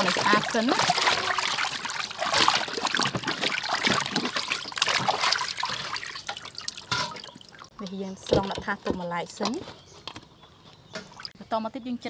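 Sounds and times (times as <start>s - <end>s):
water splashing in steel basin: 0.0s - 8.6s.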